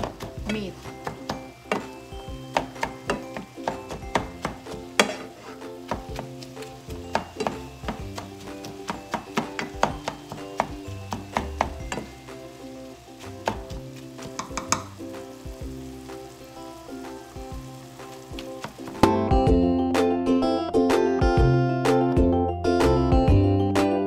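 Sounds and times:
faint sizzle: 0.0s - 19.8s
soft background music: 0.0s - 24.0s
spatula clicking against pan: 13.4s - 15.0s.

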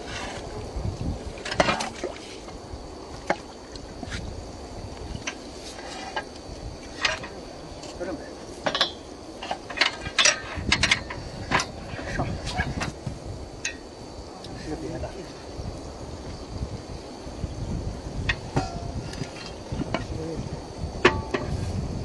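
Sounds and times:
steady low rumble: 0.0s - 22.0s
sharp knocks and clinks: 8.6s - 11.8s.

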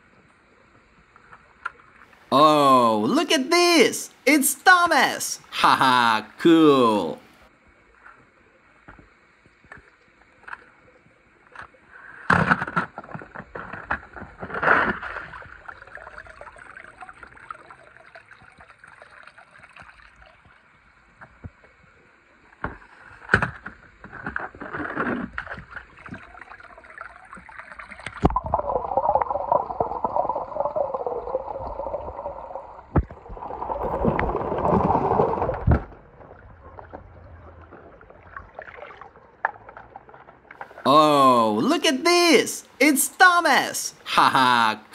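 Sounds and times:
water splashing and sloshing: 8.9s - 40.9s.

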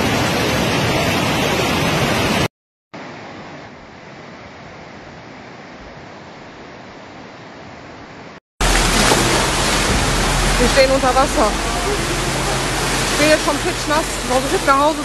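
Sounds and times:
floodwater rushing: 0.0s - 3.2s, 8.6s - 15.0s
distant river rushing: 8.6s - 15.0s.

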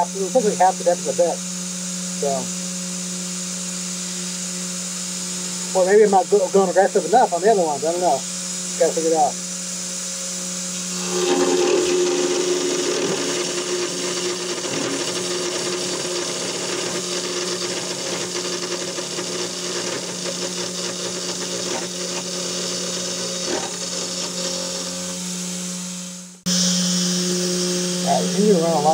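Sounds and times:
router spindle humming: 0.0s - 28.9s
end mill cutting aluminium: 10.9s - 28.9s.

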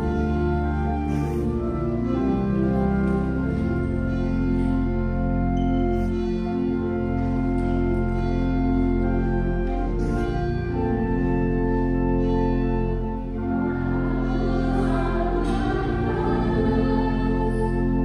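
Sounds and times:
church organ chords: 0.0s - 18.0s
voices singing: 13.6s - 18.0s.

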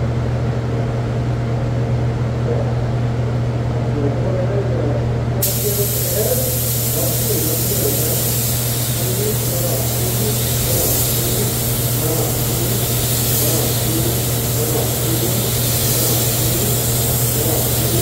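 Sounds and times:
low machine hum: 0.0s - 18.0s
paint spray gun hissing: 5.4s - 18.0s.

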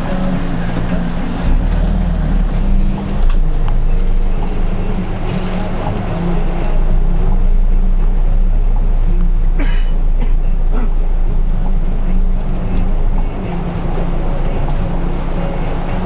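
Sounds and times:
engine and road rumble: 0.0s - 16.0s
rain and wet tyres: 0.0s - 16.0s.

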